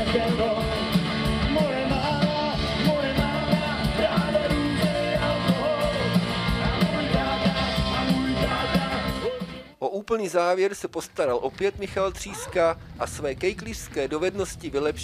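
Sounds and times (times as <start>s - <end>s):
person singing: 0.0s - 9.6s
drums steady beat: 0.0s - 9.8s
electric guitar: 0.0s - 9.8s.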